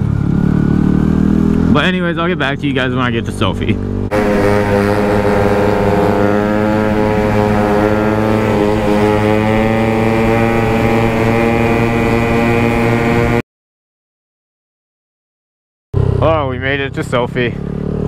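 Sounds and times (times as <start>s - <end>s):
motorcycle engine running: 0.0s - 13.4s, 16.0s - 18.0s.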